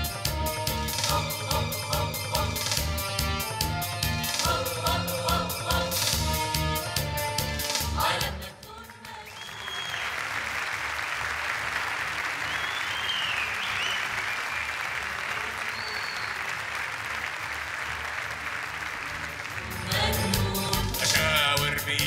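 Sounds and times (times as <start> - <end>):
music with a beat: 0.0 - 8.5, 19.7 - 22.0
whistles: 9.2 - 10.3, 12.4 - 14.8, 15.5 - 16.6
audience applause: 9.2 - 20.4.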